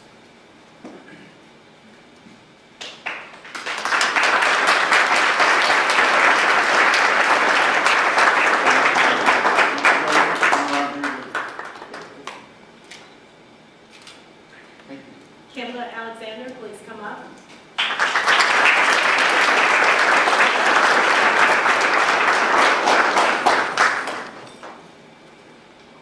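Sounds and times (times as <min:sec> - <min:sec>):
audience applauding: 0:02.8 - 0:12.4, 0:17.8 - 0:24.8.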